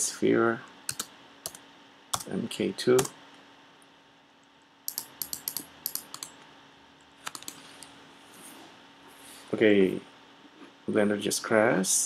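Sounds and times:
typing on computer keyboard: 0.9s - 1.6s, 4.9s - 6.3s, 7.2s - 7.6s.

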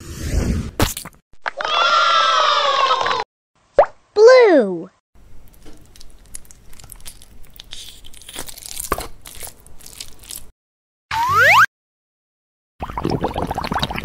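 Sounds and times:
rising whistle sound effect: 11.1s - 11.7s.

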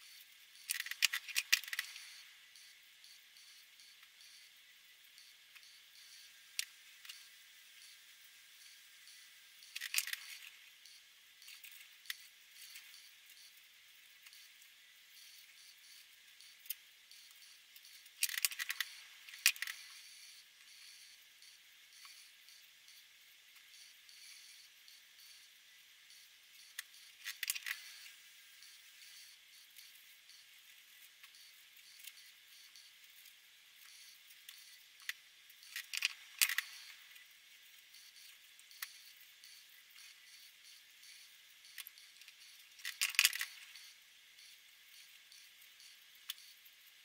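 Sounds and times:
plastic marker pens clicking: 0.7s - 2.0s.

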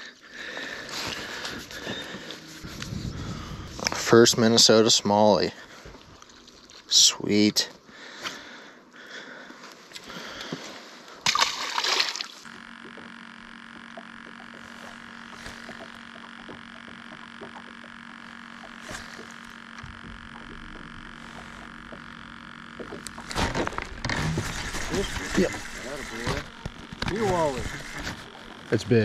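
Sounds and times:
steady low hum: 0.0s - 29.0s
water splashing hard: 11.3s - 12.4s
faint scattered ticks: 12.4s - 23.4s.

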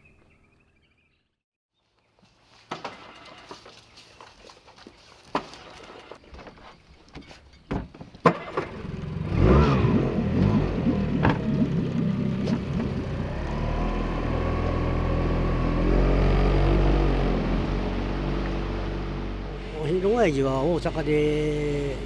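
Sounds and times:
outboard motor running: 8.3s - 22.0s.

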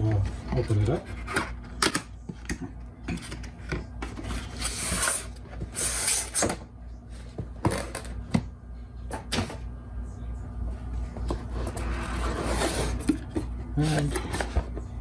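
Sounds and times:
cardboard rubbing scrapes: 11.8s - 13.0s.

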